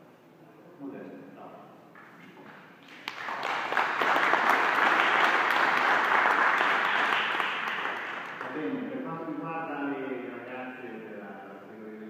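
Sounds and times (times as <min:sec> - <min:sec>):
audience applauding: 0:02.8 - 0:08.8.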